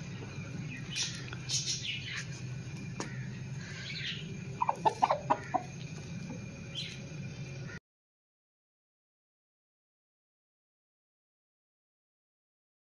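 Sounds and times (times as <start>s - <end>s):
low steady hum: 0.0s - 7.8s
rooster clucking: 4.5s - 6.4s.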